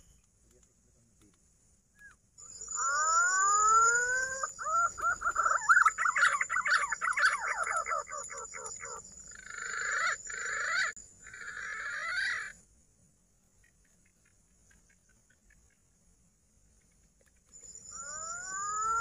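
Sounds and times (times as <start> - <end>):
pigeon whistling call: 2.0 - 12.5, 17.9 - 19.0
harsh grating bird phrases: 2.7 - 12.6.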